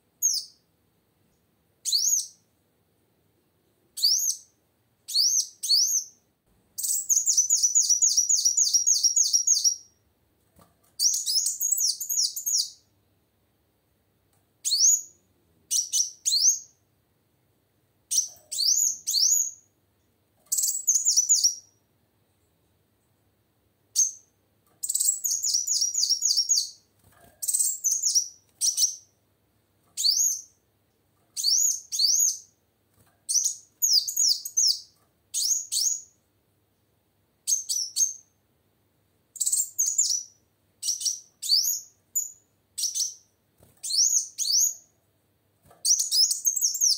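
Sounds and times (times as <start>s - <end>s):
bird chirping high and quick: 0.2s - 0.6s, 1.8s - 2.4s, 4.0s - 6.2s, 6.8s - 10.0s, 11.0s - 12.9s, 14.6s - 16.8s, 18.1s - 19.7s, 20.5s - 21.8s, 24.0s - 26.8s, 27.4s - 29.2s, 30.0s - 30.6s, 31.4s - 32.5s, 33.3s - 36.2s, 37.5s - 38.3s, 39.4s - 44.9s, 45.8s - 46.9s.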